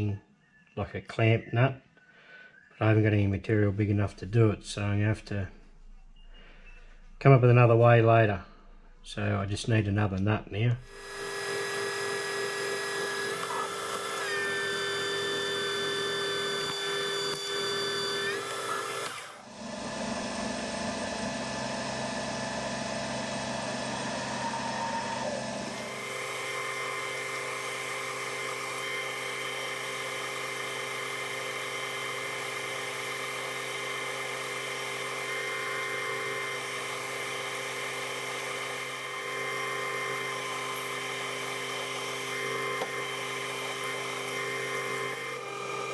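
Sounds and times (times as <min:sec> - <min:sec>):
drill boring into steel: 0:10.8 - 0:45.9
metal lathe whining: 0:10.9 - 0:45.9.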